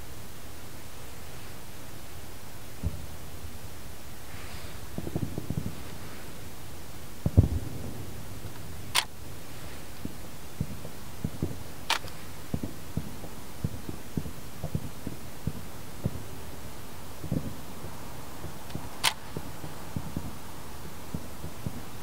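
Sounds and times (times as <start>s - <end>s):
distant fireworks booming: 2.7s - 22.0s
sharp clicks: 8.5s - 9.2s, 11.9s - 12.2s, 18.7s - 19.5s.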